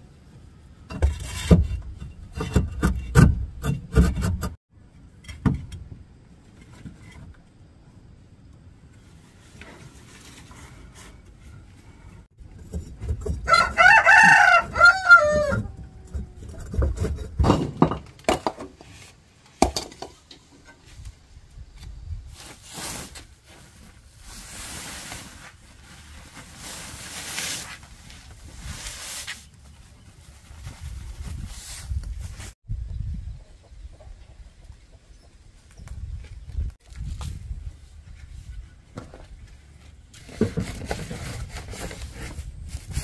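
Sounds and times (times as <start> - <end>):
rustling noise: 8.9 - 17.4, 20.6 - 32.6, 35.6 - 43.0
rooster crowing: 13.5 - 15.9.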